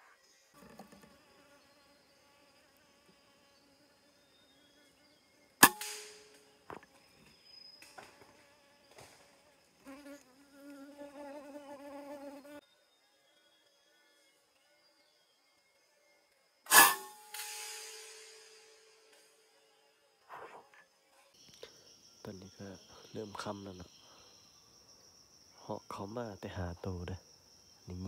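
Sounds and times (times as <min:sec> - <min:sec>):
insect buzzing close: 0:00.0 - 0:12.6
high insect whine: 0:00.0 - 0:28.0
air rifle shot: 0:05.6 - 0:06.3, 0:16.7 - 0:18.9.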